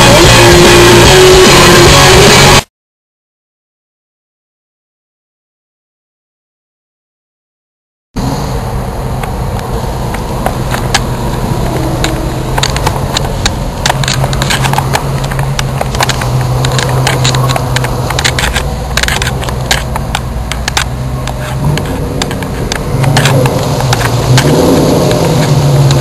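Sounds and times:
car engine droning: 0:00.0 - 0:02.6, 0:08.2 - 0:26.0
sharp clicks and crackles: 0:09.2 - 0:26.0.

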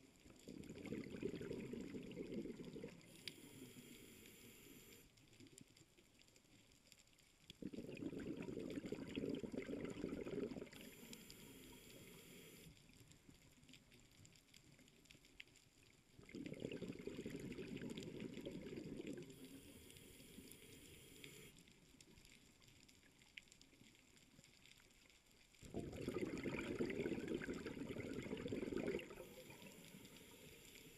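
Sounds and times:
quiet water noise: 0:00.0 - 0:30.9
underwater breath bubbling: 0:00.5 - 0:05.0, 0:07.6 - 0:12.7, 0:16.2 - 0:21.6, 0:25.6 - 0:30.9.

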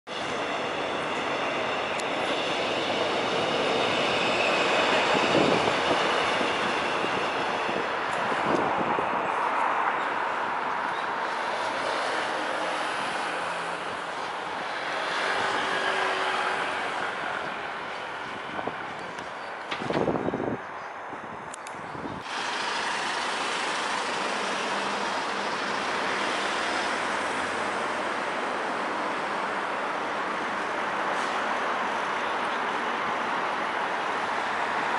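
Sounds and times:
train wheels on track: 0:00.1 - 0:20.6, 0:21.6 - 0:34.9
road traffic roar: 0:00.1 - 0:34.9.

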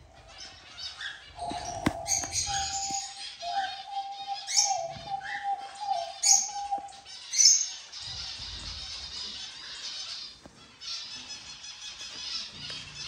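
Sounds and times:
loud sharp bird calls: 0:00.0 - 0:13.0
small birds chirping and twittering: 0:00.0 - 0:13.0.

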